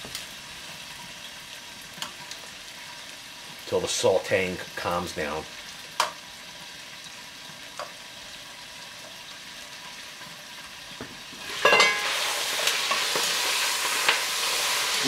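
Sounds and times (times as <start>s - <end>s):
vegetables sizzling in oil: 0.0s - 15.0s
heavy pot lid clanking: 11.4s - 12.3s.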